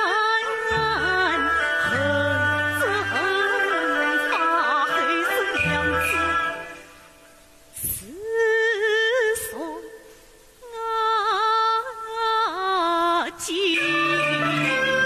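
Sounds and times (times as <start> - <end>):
woman singing opera: 0.0 - 6.9, 7.8 - 15.0
instrumental accompaniment: 0.0 - 7.8, 13.7 - 15.0.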